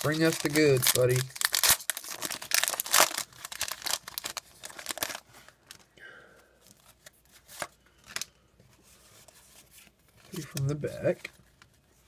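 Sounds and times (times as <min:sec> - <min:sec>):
foil wrapper crinkling: 0:00.0 - 0:05.9.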